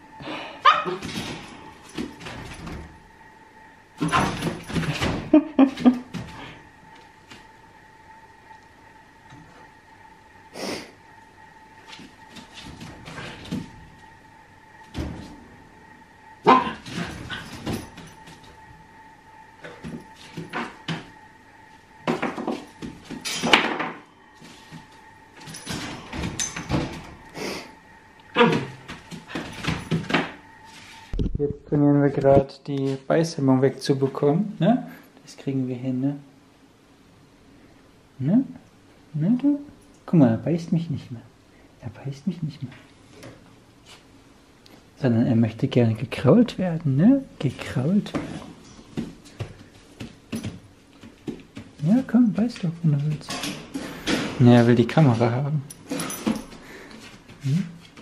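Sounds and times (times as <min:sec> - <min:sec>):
puppy paws scuffling: 0:47.4 - 0:53.3.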